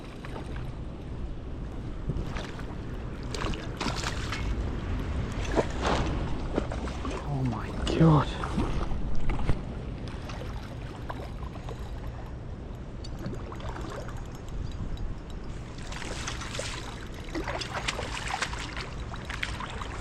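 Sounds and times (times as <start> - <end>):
river water rumbling: 0.0 - 20.0
wind across microphone: 0.0 - 20.0
water splashing: 2.2 - 4.7, 5.3 - 11.9, 15.6 - 20.0.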